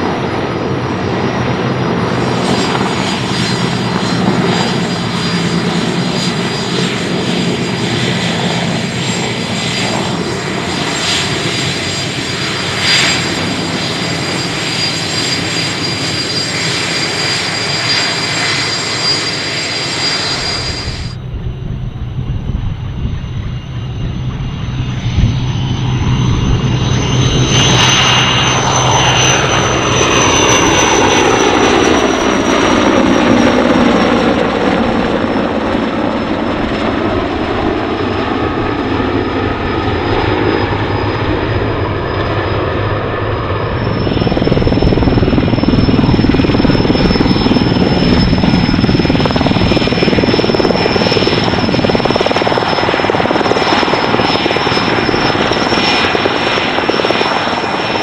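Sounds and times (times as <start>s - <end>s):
helicopter rotor noise: 0.0s - 58.0s
high turbine whine: 0.0s - 58.0s.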